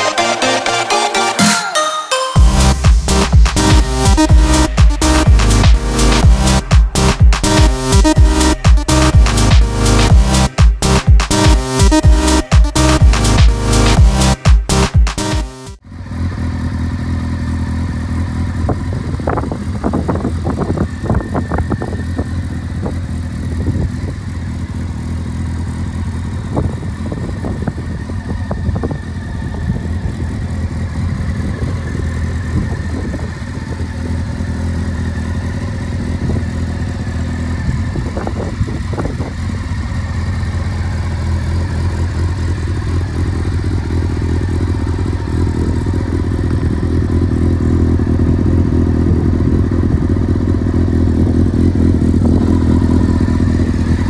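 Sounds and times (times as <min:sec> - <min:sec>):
motorcycle engine idling: 0:15.8 - 0:54.0.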